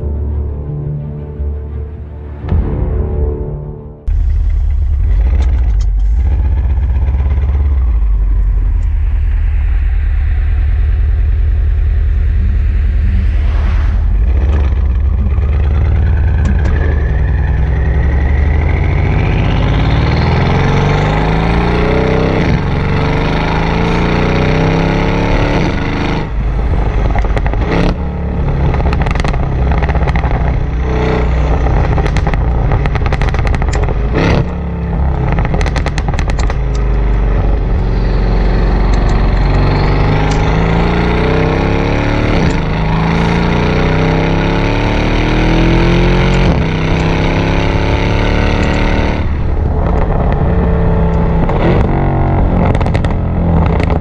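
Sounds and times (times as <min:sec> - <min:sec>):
car exhaust rumbling and accelerating: 0:04.0 - 0:54.0
exhaust overrun pops and crackles: 0:04.1 - 0:09.0, 0:26.8 - 0:28.0, 0:28.6 - 0:30.8, 0:31.4 - 0:37.6, 0:48.6 - 0:54.0.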